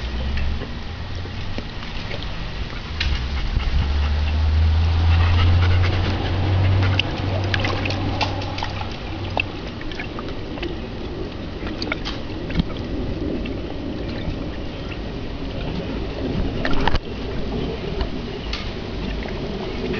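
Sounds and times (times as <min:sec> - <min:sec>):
low steady hum: 0:00.0 - 0:19.9
small water splashes: 0:00.0 - 0:19.9
dog panting: 0:03.0 - 0:08.6.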